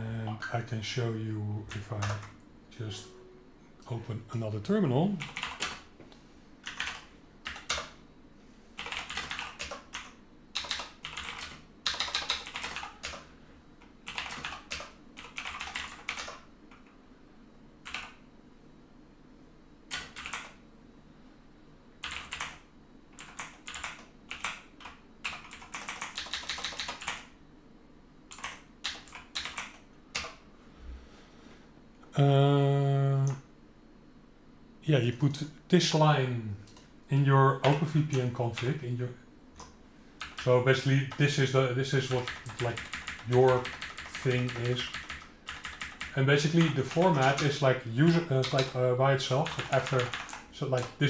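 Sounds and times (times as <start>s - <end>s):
typing on a computer keyboard: 1.7s - 2.4s, 5.2s - 5.8s, 6.6s - 8.0s, 8.8s - 16.9s, 17.8s - 18.2s, 19.9s - 20.6s, 22.0s - 27.3s, 28.3s - 30.4s, 39.6s - 40.5s, 42.1s - 48.8s, 49.4s - 51.0s.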